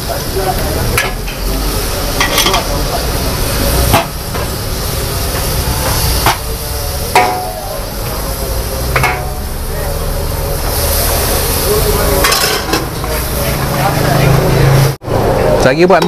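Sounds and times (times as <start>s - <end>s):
noodles sizzling in a wok: 0.0s - 15.0s
spatula scraping wok: 0.0s - 15.0s
spatula clanking on wok: 2.1s - 2.8s, 5.2s - 7.7s, 8.8s - 9.6s.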